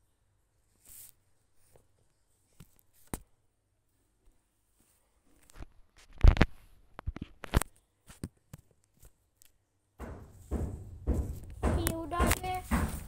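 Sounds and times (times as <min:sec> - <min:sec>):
phone handling knocks and rubs: 0:10.0 - 0:13.0.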